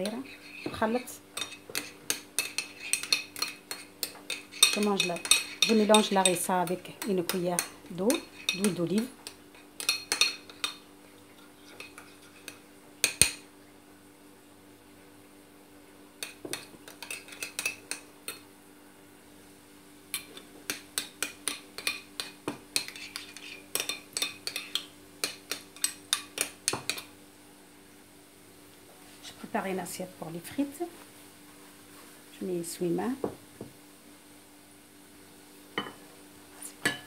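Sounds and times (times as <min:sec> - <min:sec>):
metal spoon clinking on ceramic dish: 0:01.4 - 0:06.4, 0:08.5 - 0:08.8.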